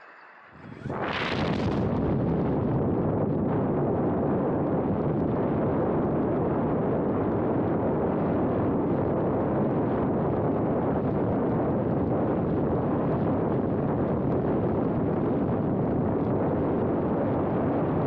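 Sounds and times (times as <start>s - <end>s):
rushing airflow: 0.0s - 13.7s.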